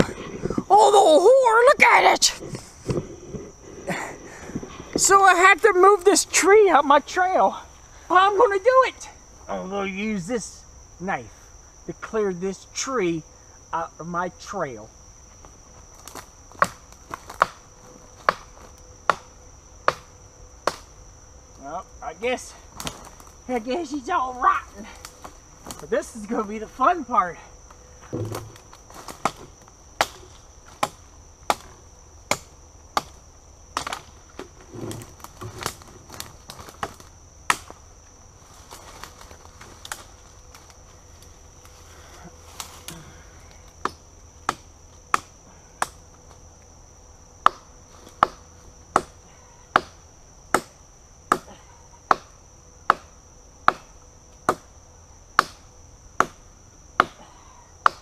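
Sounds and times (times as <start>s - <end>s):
knife chopping into rotten wood: 28.1s - 29.4s.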